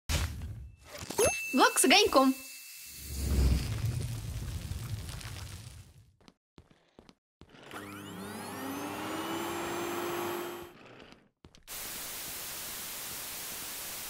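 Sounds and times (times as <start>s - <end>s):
vacuum cleaner motor whine: 7.5s - 10.8s
television static hiss: 11.8s - 14.0s.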